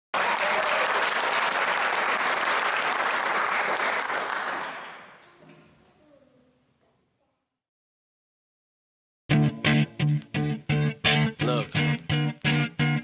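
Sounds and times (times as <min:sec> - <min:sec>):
audience applause: 0:00.1 - 0:05.2.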